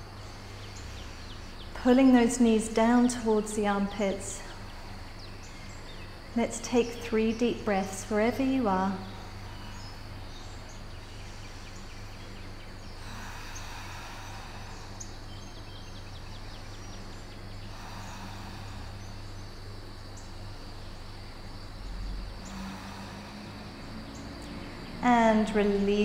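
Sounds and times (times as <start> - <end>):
even hiss: 0.0 - 26.0
low hum: 0.0 - 26.0.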